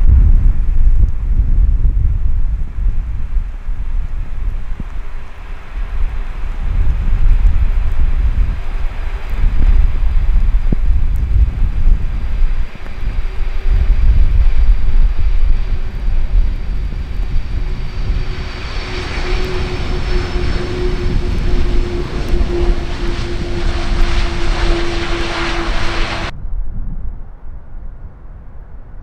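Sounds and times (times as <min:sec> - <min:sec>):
wind rumble on microphone: 0:00.0 - 0:29.0
jet engines running: 0:04.1 - 0:26.3.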